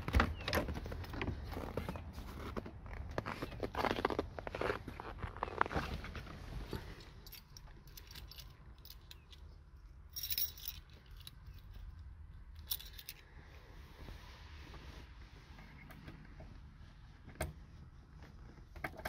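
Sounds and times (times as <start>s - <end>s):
car keys jangling: 7.0s - 9.5s, 10.1s - 13.2s.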